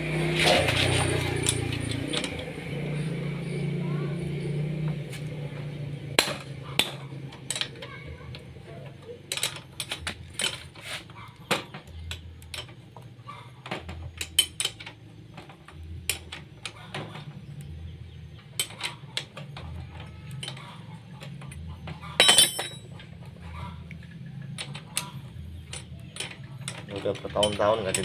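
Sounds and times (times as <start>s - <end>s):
wrenches clinking on metal: 0.2s - 3.0s, 6.2s - 28.0s.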